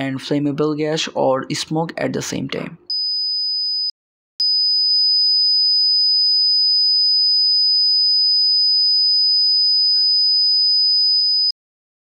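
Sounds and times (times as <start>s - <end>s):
electronic buzzers high-pitched tone: 2.9s - 11.5s.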